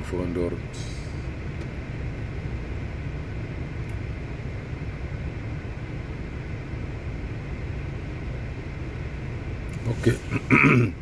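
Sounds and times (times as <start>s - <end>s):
man talking: 0.0s - 1.0s, 9.8s - 10.5s.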